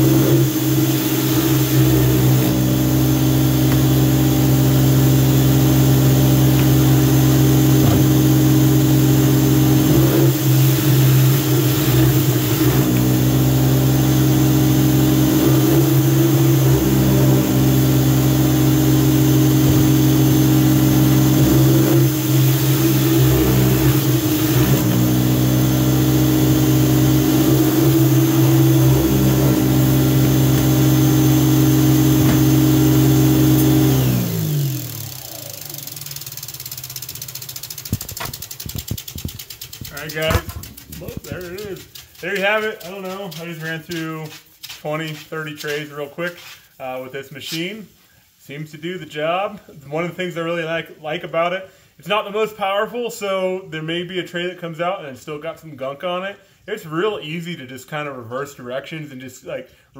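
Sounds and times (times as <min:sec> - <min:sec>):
pressure washer winding down: 0:00.0 - 0:44.4
pressure washer running: 0:00.0 - 0:46.6.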